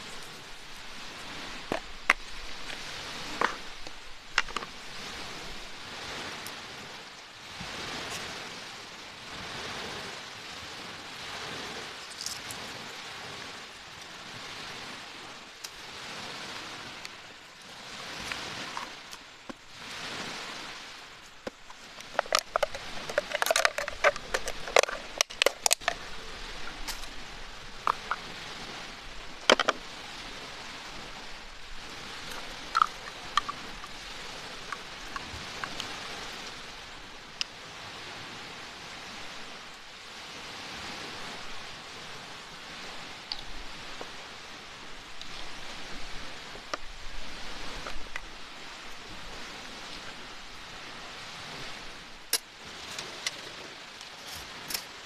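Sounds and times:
waves washing on a beach: 0:00.0 - 0:55.0
plastic containers clicking: 0:22.0 - 0:26.0.

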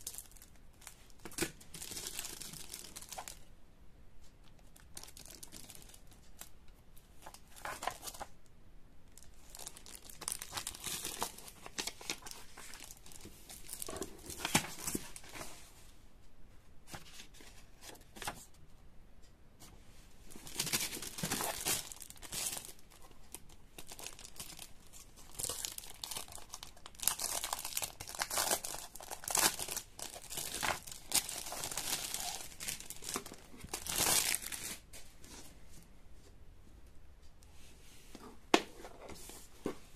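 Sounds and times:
plastic packaging crinkling: 0:00.0 - 0:03.4, 0:04.8 - 0:06.5, 0:09.2 - 0:15.5, 0:20.3 - 0:34.9.

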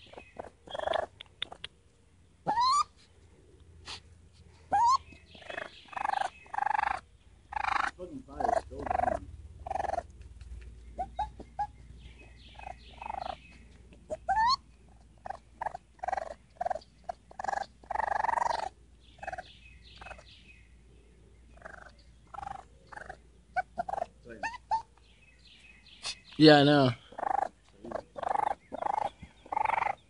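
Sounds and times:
baby raccoon calling: 0:00.0 - 0:03.1, 0:03.8 - 0:20.6, 0:21.4 - 0:30.0
raccoon squeal: 0:02.4 - 0:03.0, 0:04.7 - 0:10.0, 0:12.5 - 0:13.4, 0:14.1 - 0:14.6, 0:15.2 - 0:16.8, 0:17.4 - 0:20.3, 0:21.6 - 0:24.9, 0:27.1 - 0:30.0.

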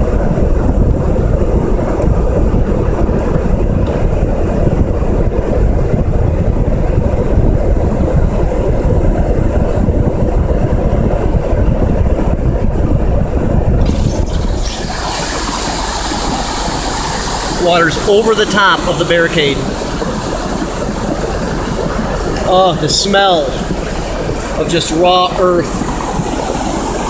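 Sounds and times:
wind buffeting microphone: 0:00.0 - 0:27.0
flood water rushing: 0:13.8 - 0:27.0.

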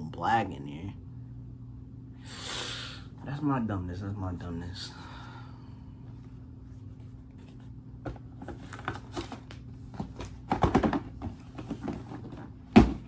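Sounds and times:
sneakers clicking and knocking: 0:09.9 - 0:13.0.

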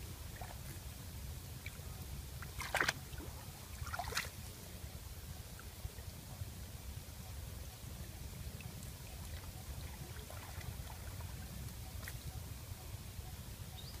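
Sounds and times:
muddy water splashing: 0:01.6 - 0:04.6, 0:08.6 - 0:12.4.

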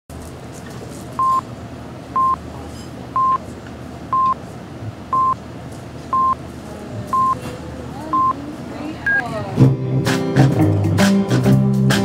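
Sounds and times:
countdown beeps: 0:02.2 - 0:02.4, 0:03.2 - 0:03.4, 0:04.1 - 0:04.4, 0:05.1 - 0:05.4, 0:06.2 - 0:06.4, 0:07.2 - 0:07.4, 0:08.2 - 0:08.4, 0:09.0 - 0:09.2.

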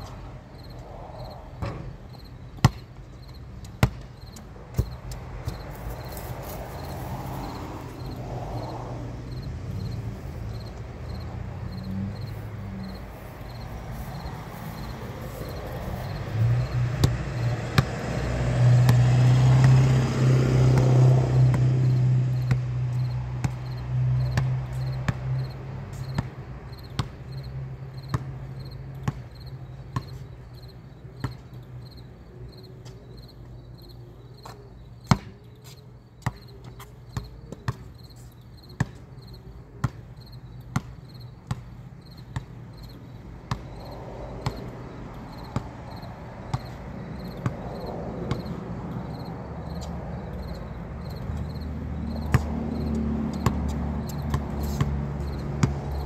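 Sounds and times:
faint cricket chirping: 0:00.0 - 0:18.6, 0:21.8 - 0:56.0
vehicle engine humming: 0:00.0 - 0:28.7, 0:42.9 - 0:56.0
basketball bouncing on concrete: 0:02.6 - 0:08.2, 0:09.3 - 0:30.2, 0:31.2 - 0:31.5, 0:34.4 - 0:38.0, 0:38.7 - 0:42.6, 0:43.5 - 0:56.0.

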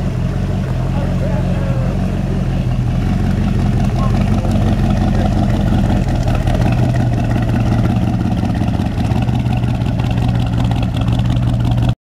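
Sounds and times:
car engine low rumble: 0:00.0 - 0:12.0.

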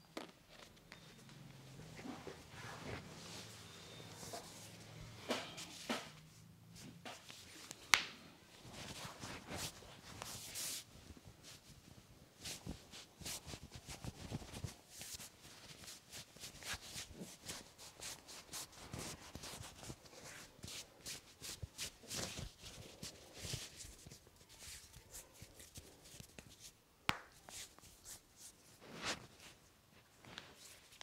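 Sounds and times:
hands rubbing on shirt: 0:08.6 - 0:29.6.

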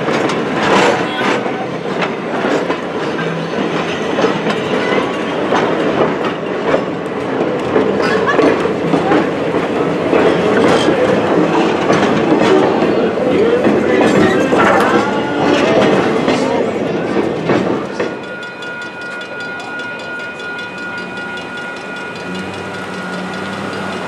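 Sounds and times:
steel wheels clattering on rails: 0:00.0 - 0:24.0
train rumble: 0:00.0 - 0:24.0.

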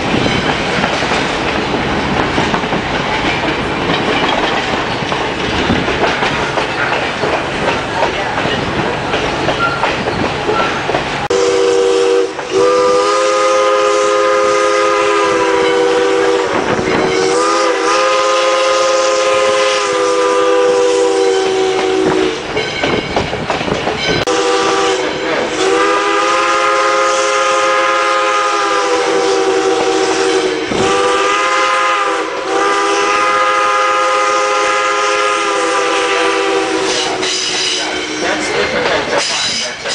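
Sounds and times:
train coaches clacking on rails: 0:00.0 - 0:39.9
steam locomotive chime whistle: 0:10.5 - 0:23.2, 0:24.0 - 0:39.8.

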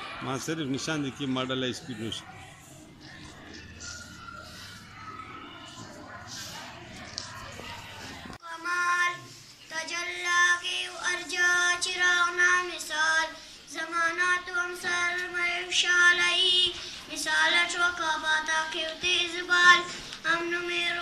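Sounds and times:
girl singing unaccompanied: 0:08.3 - 0:21.0.

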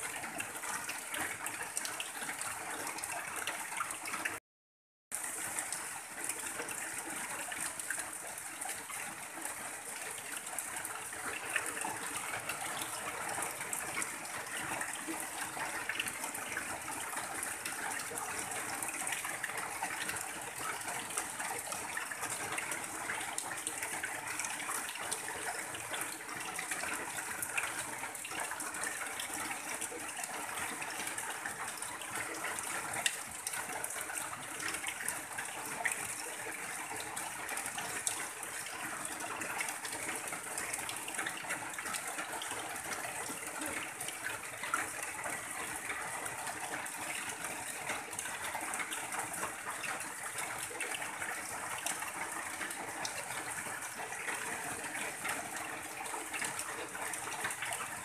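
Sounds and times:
heavy rain on a tin roof: 0:00.0 - 0:04.4, 0:05.1 - 0:58.0
water pouring off roof edge: 0:05.2 - 0:58.0.

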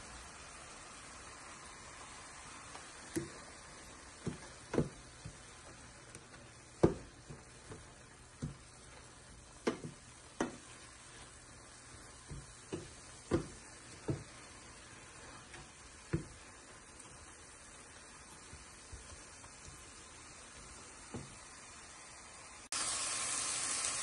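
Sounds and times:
faint sizzle: 0:00.0 - 0:24.0
wooden spoon scraping a pan: 0:03.1 - 0:20.0.

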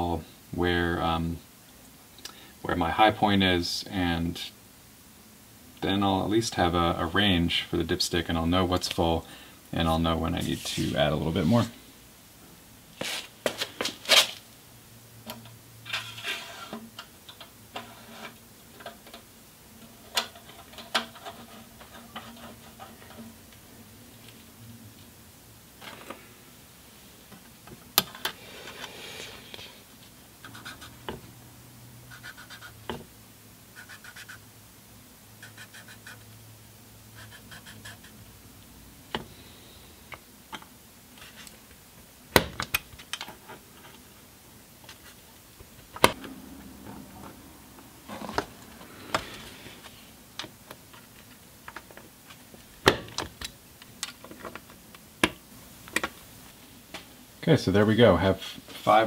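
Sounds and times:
blade scraping metal: 0:15.9 - 0:16.8.

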